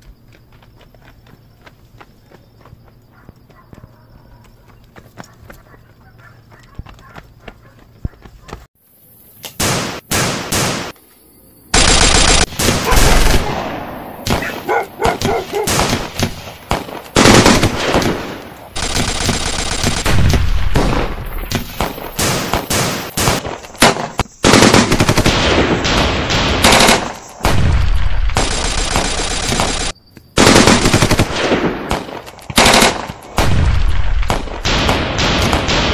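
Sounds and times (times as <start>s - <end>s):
handguns firing rapidly: 32.6s - 33.1s.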